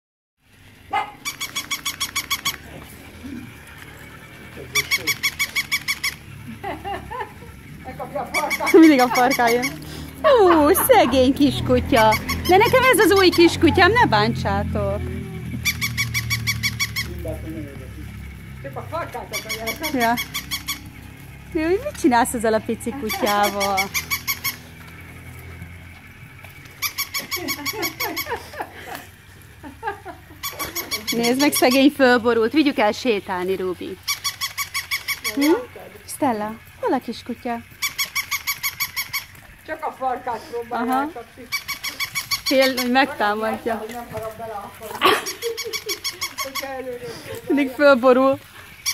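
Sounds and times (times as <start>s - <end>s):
toy puppy yapping: 0.9s - 2.8s, 4.8s - 6.4s, 8.3s - 11.0s, 11.9s - 13.6s, 15.3s - 17.4s, 19.3s - 20.9s, 23.0s - 24.7s, 26.8s - 28.4s, 30.4s - 31.9s, 34.0s - 35.7s, 37.7s - 39.4s, 41.5s - 43.2s, 45.0s - 46.9s.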